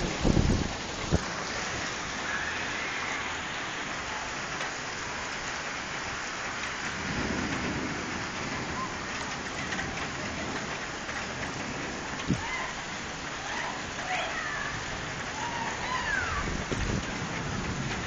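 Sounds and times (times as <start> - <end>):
low rumble of thunder: 0.0 - 1.4, 6.6 - 12.7, 14.6 - 18.0
rain on wet pavement: 0.0 - 18.0.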